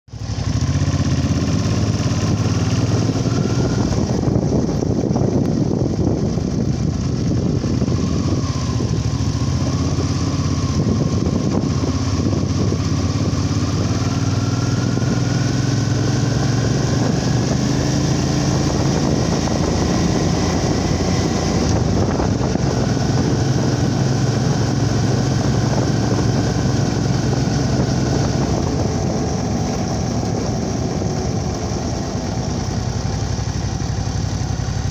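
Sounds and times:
vehicle engine humming: 0.1 - 34.9
faint rising whine: 6.9 - 33.3.

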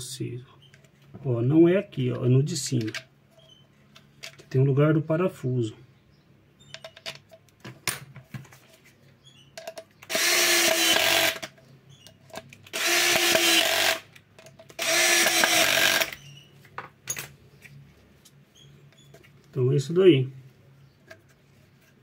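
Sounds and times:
power drill whining: 10.1 - 11.5, 12.7 - 14.1, 14.8 - 16.4.

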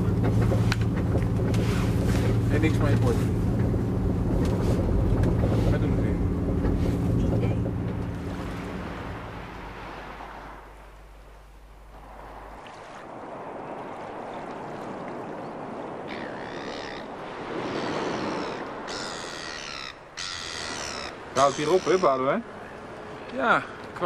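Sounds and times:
water on the shore: 0.0 - 24.0
wind: 0.0 - 24.0
birds calling: 15.3 - 24.0.

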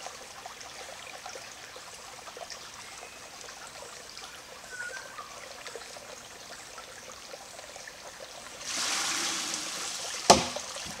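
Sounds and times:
creek water trickling: 0.0 - 11.0
water gushing out of a trough: 8.6 - 11.0
log knocking on stone: 10.3 - 11.0.

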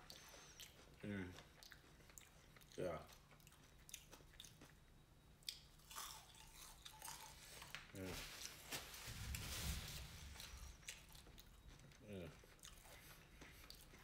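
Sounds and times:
chewing and crunching food: 0.0 - 9.4, 10.2 - 14.0.

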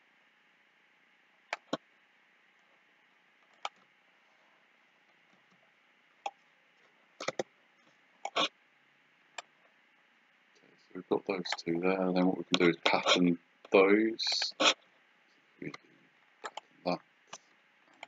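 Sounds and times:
faint steady hiss: 0.0 - 18.0
mouse and keyboard clicks: 7.2 - 7.5, 16.4 - 16.6.

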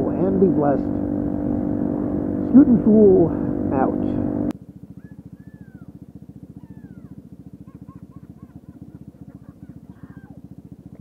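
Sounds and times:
scooter engine idling: 0.0 - 11.0
children laughing and yelling: 5.0 - 6.0, 6.6 - 10.4.

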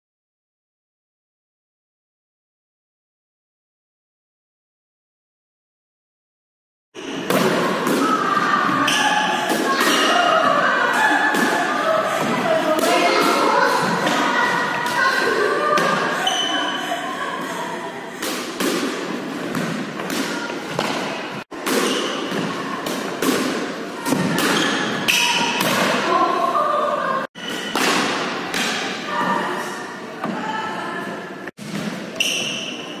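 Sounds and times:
squash ball knocks echoing: 27.4 - 29.0.

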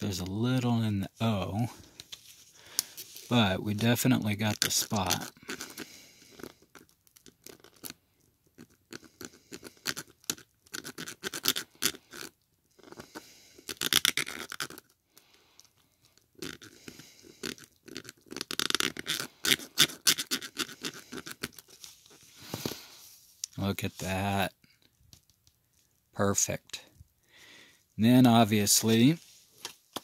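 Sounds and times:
fingers scratching on plastic: 3.0 - 15.0, 16.0 - 22.6.

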